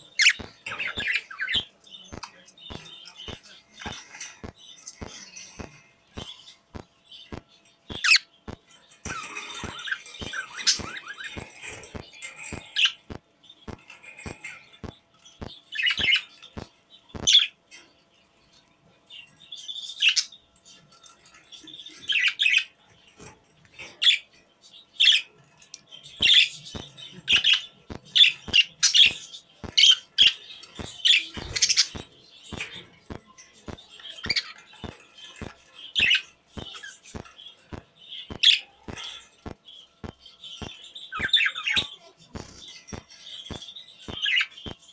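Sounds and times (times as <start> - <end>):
faint steady ticking: 0.0 - 17.7
budgerigars chirping and warbling: 0.0 - 44.9.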